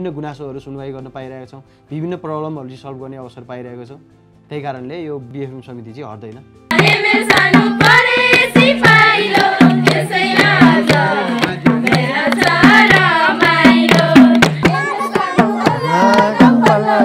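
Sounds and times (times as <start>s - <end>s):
hand drum rhythm: 6.7s - 17.0s
people singing: 6.7s - 17.0s.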